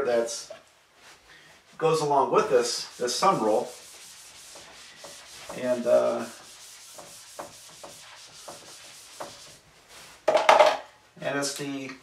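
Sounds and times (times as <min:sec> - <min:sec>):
eraser rubbing whiteboard: 0:02.4 - 0:10.1.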